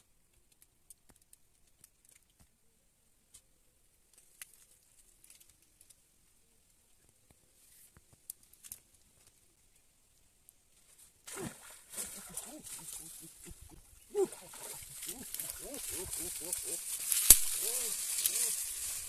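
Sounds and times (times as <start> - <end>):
faint scattered clicks: 0.0 - 2.6, 4.1 - 9.5.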